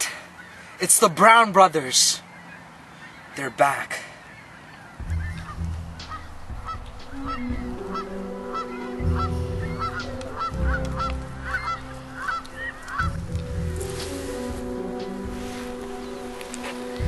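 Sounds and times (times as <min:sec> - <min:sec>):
geese honking: 0:00.0 - 0:17.0
wind rumbling on microphone: 0:04.9 - 0:17.0.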